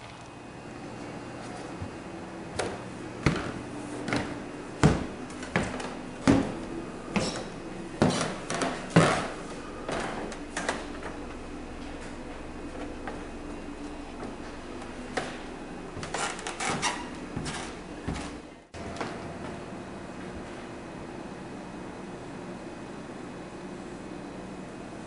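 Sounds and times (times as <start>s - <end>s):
faint steady hum: 0.0s - 25.0s
footsteps on wooden floor: 1.4s - 19.6s.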